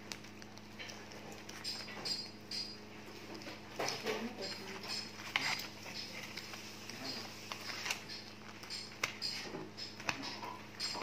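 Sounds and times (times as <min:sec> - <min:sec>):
low steady hum: 0:00.0 - 0:11.0
paper wrappers rustling: 0:02.9 - 0:11.0
plastic cutlery scraping food: 0:03.4 - 0:11.0.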